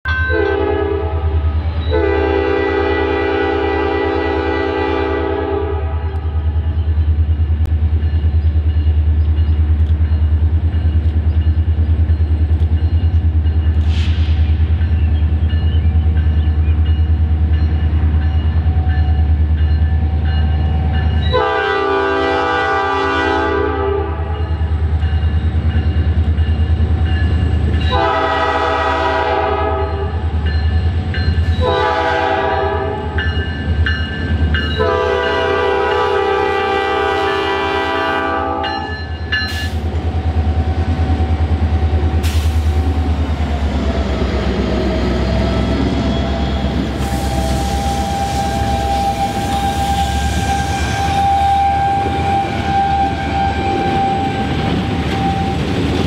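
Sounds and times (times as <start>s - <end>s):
diesel locomotive engine throb: 0.0s - 56.0s
locomotive air horn blasts: 0.1s - 6.1s, 21.2s - 24.6s, 27.9s - 30.2s, 31.6s - 33.2s, 34.6s - 38.9s, 47.0s - 55.6s.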